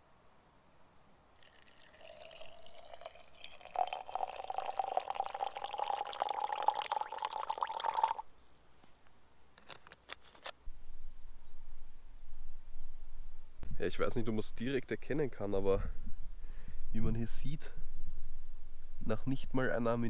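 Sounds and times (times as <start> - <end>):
water pouring into a glass jar: 1.4 - 8.3.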